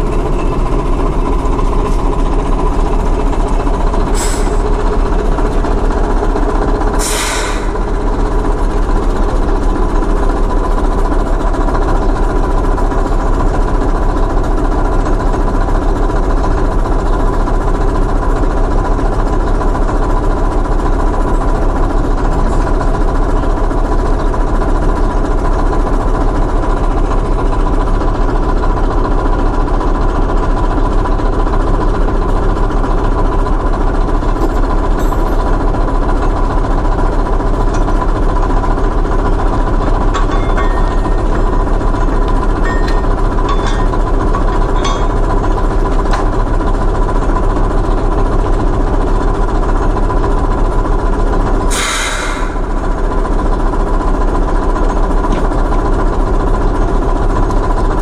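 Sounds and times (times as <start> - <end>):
diesel locomotive idling: 0.0 - 58.0
short hisses: 7.0 - 7.7, 51.7 - 52.6.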